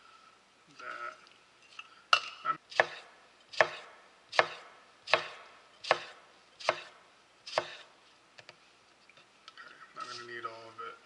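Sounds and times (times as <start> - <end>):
knife slicing a lemon: 2.2 - 7.9.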